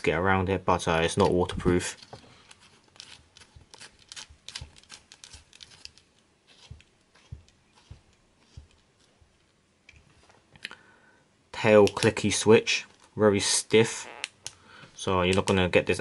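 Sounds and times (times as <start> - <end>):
flashlight cap twisting on threads: 2.0 - 9.1.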